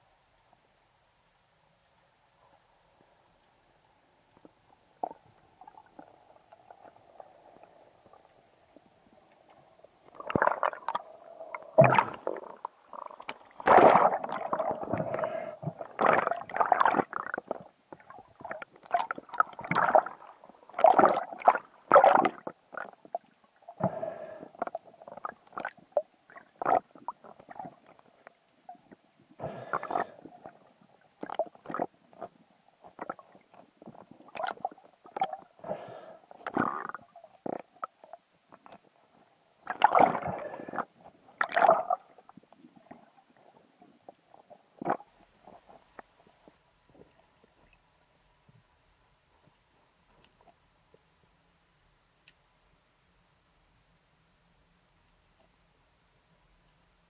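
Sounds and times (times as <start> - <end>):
faint steady hum: 0.0 - 57.0
underwater gurgles: 4.4 - 48.0.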